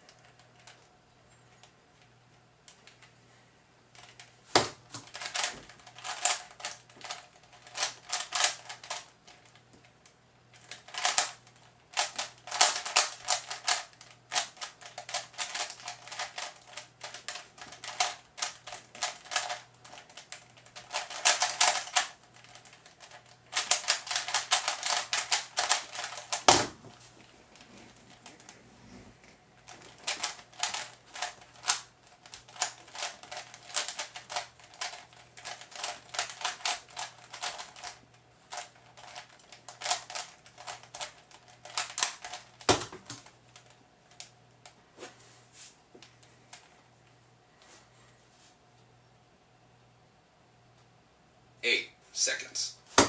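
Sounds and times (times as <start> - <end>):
puzzle cube plastic clicking: 4.9 - 26.6, 29.7 - 44.3.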